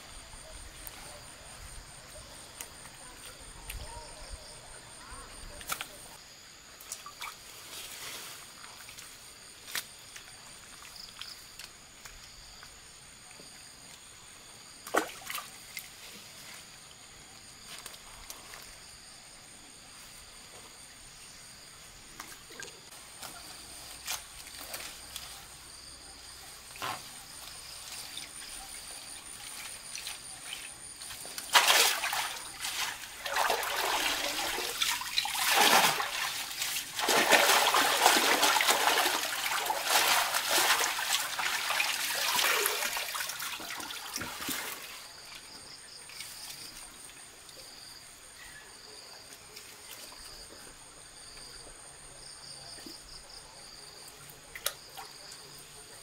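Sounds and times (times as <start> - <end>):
hands splashing in water: 31.4 - 44.8.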